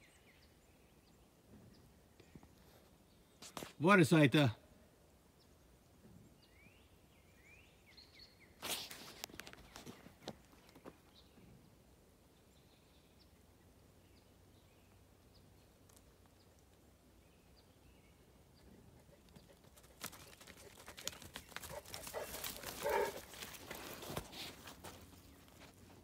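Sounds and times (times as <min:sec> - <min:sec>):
footsteps crunching through dry leaves: 0:21.5 - 0:25.8.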